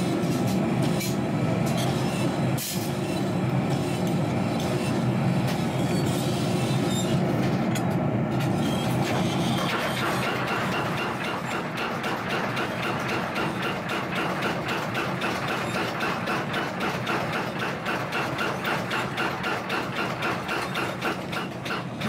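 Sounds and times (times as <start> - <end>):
power hammer striking steel: 9.6 - 22.0.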